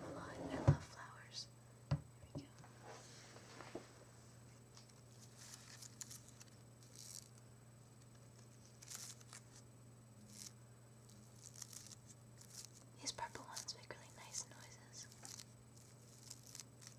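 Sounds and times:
steady low hum: 0:00.0 - 0:16.9
fingers rustling flower petals: 0:04.8 - 0:07.4, 0:08.0 - 0:09.6, 0:11.1 - 0:13.8, 0:15.0 - 0:16.9.

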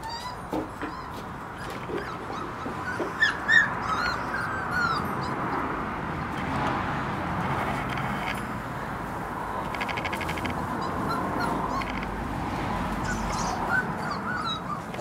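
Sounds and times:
puppies whimpering: 0:00.0 - 0:06.4, 0:10.4 - 0:15.0.

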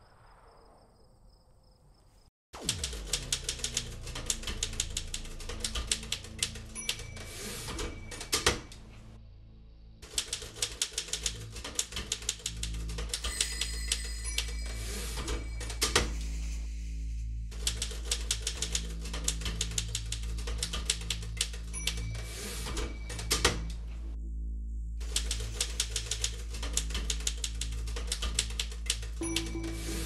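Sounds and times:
low music drone: 0:02.6 - 0:30.0
typewriter keys clattering: 0:02.9 - 0:08.8, 0:10.0 - 0:14.5, 0:17.6 - 0:23.8, 0:25.0 - 0:29.6
ringing tone: 0:13.3 - 0:17.1.

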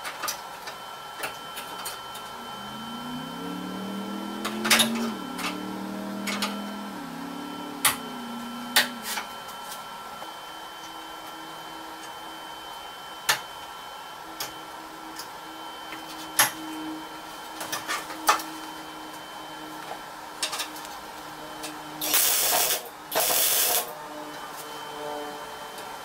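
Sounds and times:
arc welding crackle: 0:22.0 - 0:23.9.

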